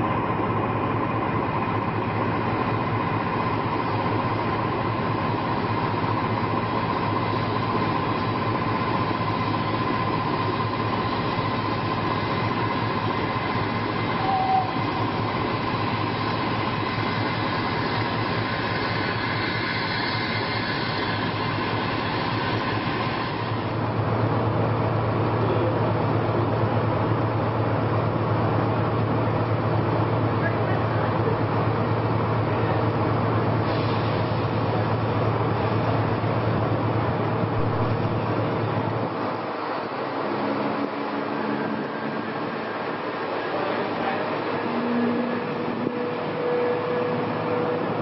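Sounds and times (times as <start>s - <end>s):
deep diesel locomotive drone: 0.0s - 48.0s
diesel locomotive idling: 0.0s - 48.0s
steam noise: 2.2s - 24.2s, 33.0s - 48.0s
brief high tone: 14.2s - 15.0s.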